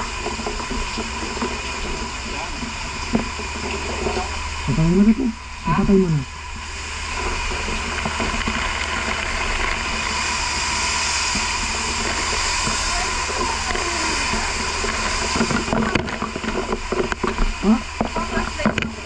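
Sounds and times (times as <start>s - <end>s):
fire hose spraying water: 0.0s - 19.0s
voices: 3.9s - 6.3s, 12.6s - 16.2s, 17.6s - 19.0s.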